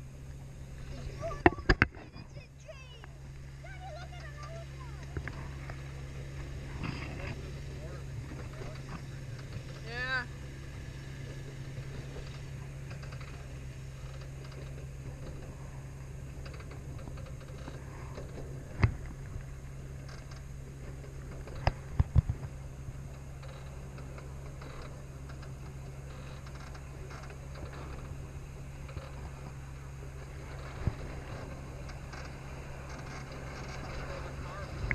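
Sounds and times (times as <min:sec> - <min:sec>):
small train rolling on track: 0:00.7 - 0:34.9.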